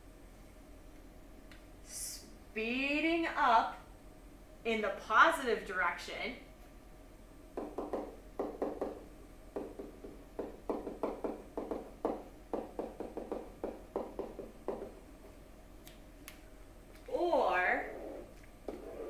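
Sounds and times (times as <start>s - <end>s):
stylus tapping on tablet: 7.6s - 15.0s.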